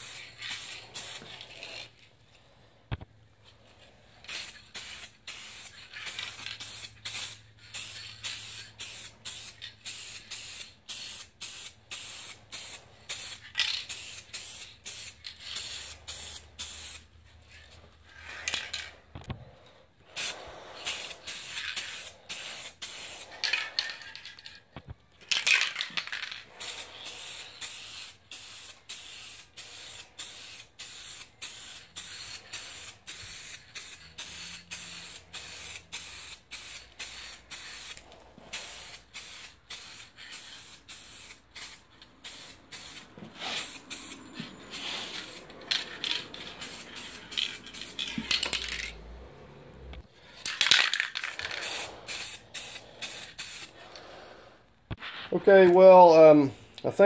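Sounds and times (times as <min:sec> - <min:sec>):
aerosol spray can hissing: 0:26.5 - 0:45.5, 0:46.1 - 0:48.1, 0:51.3 - 0:53.8.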